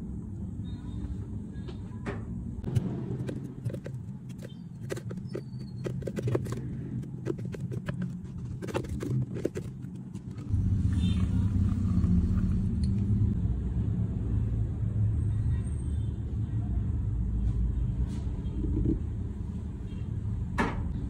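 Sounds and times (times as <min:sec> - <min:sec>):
spatula scraping blender jar: 0:02.7 - 0:10.5.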